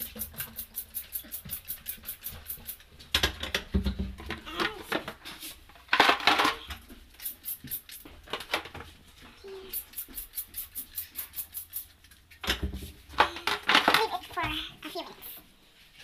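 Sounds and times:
spray bottle squirts: 0:00.0 - 0:02.8, 0:07.2 - 0:08.0, 0:09.7 - 0:11.9.

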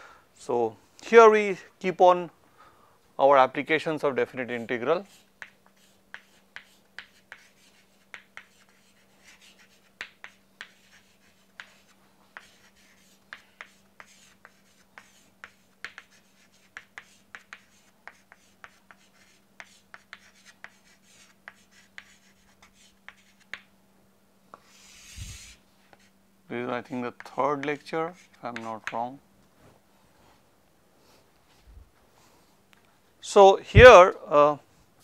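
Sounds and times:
chalk tapping on chalkboard: 0:05.0 - 0:23.7, 0:27.1 - 0:29.1.

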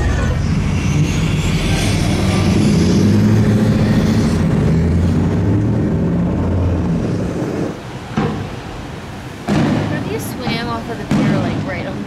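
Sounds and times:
truck engine droning: 0:00.0 - 0:11.6.

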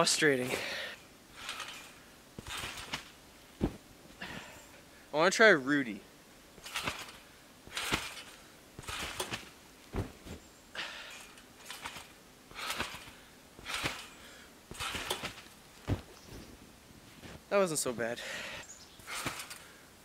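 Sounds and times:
deep thud: 0:02.4 - 0:03.8, 0:08.8 - 0:10.4, 0:14.7 - 0:16.4
crunching thumps in snow: 0:02.4 - 0:03.9, 0:06.6 - 0:10.4, 0:14.7 - 0:17.4.

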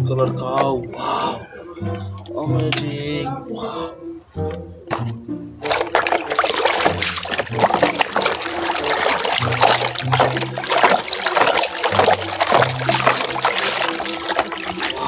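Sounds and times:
water sloshing in plastic basin: 0:05.6 - 0:15.0.

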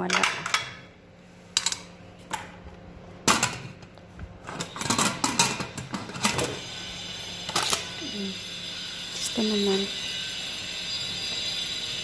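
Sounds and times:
metal pots and lids clinking: 0:00.0 - 0:00.9, 0:04.5 - 0:06.6.

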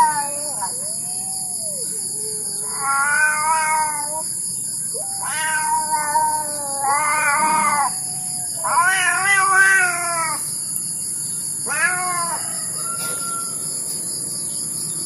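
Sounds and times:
cat meowing: 0:00.0 - 0:01.7, 0:02.4 - 0:04.3, 0:04.9 - 0:10.4, 0:11.6 - 0:13.5.

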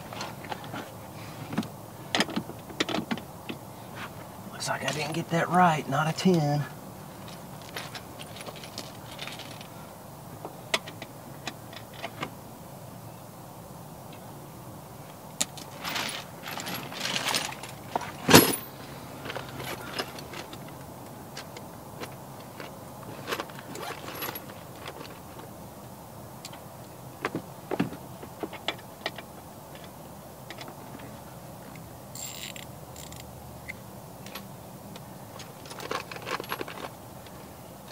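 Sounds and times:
metal tools clinking and rattling: 0:15.6 - 0:20.6.

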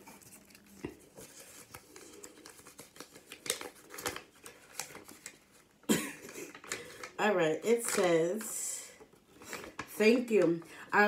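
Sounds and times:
package being unwrapped: 0:00.0 - 0:07.2.

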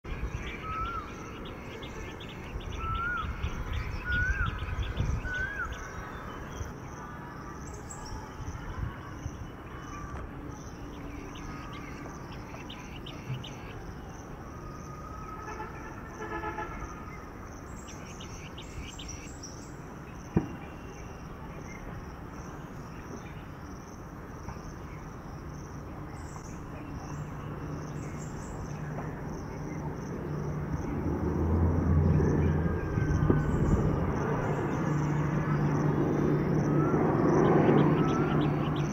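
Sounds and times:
birds whistling: 0:00.1 - 0:06.7, 0:32.4 - 0:38.9
pulsing insect chorus: 0:00.1 - 0:38.9.

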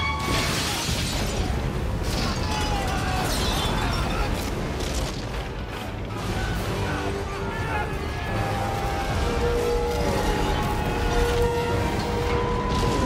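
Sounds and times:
debris crashing and rumbling: 0:00.0 - 0:13.0
film score music: 0:00.0 - 0:13.0
explosion: 0:00.1 - 0:05.6.

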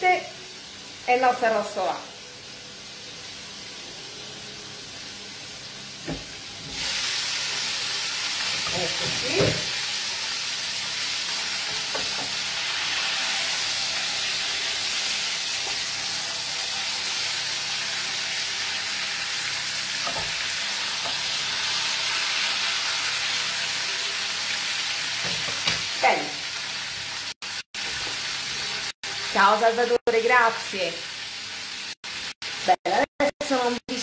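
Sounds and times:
meat sizzling in a pan: 0:00.0 - 0:33.8
wooden spatula knocking on pan: 0:11.9 - 0:12.4.

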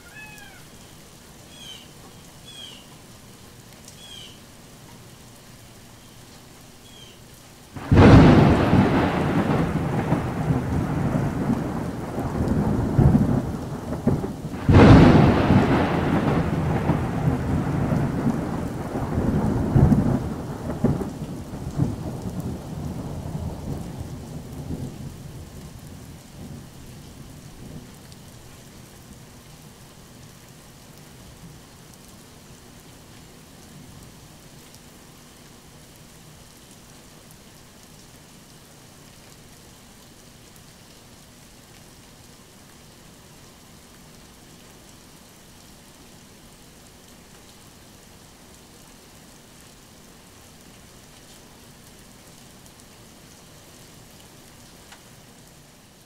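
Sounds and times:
steady rain falling: 0:00.0 - 0:56.0
short chirping calls: 0:01.5 - 0:02.9, 0:04.0 - 0:04.4, 0:06.8 - 0:07.2
thunder claps rumbling: 0:07.8 - 0:26.6.

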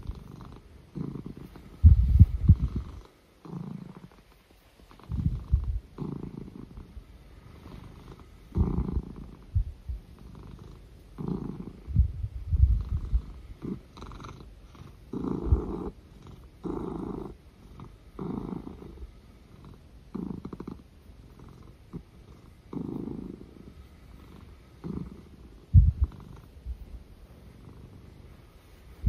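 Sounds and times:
cat purring loudly: 0:00.0 - 0:29.0
low thuds: 0:01.8 - 0:02.9, 0:11.9 - 0:13.4, 0:25.7 - 0:26.8.

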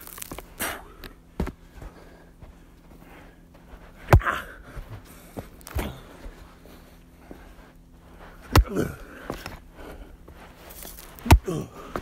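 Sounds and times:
axe chopping wood: 0:04.1 - 0:04.5, 0:08.5 - 0:09.4, 0:10.9 - 0:12.0.

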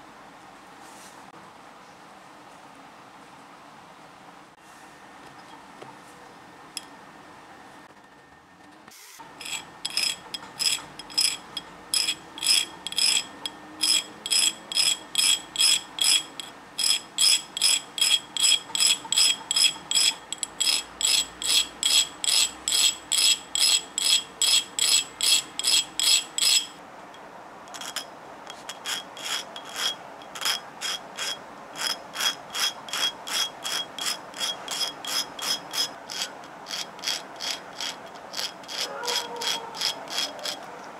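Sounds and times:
metal scraping on grinding wheel: 0:09.3 - 0:26.8, 0:27.7 - 0:40.6.

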